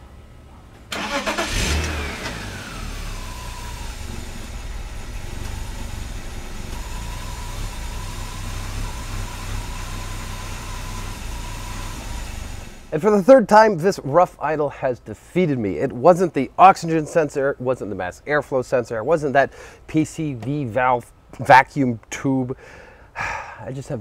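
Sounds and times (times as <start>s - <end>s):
high engine whine: 0.0s - 13.0s
car engine starting and idling: 0.2s - 13.2s.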